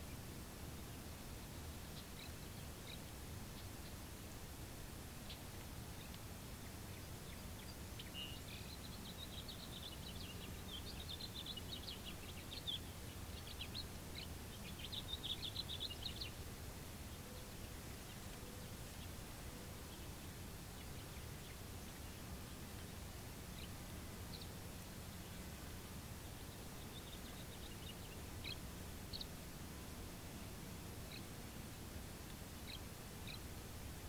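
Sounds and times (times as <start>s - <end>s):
low background hum: 0.0s - 34.0s
swallows twittering: 6.9s - 16.4s, 23.5s - 25.4s, 26.1s - 29.4s, 31.0s - 31.4s, 32.5s - 33.5s.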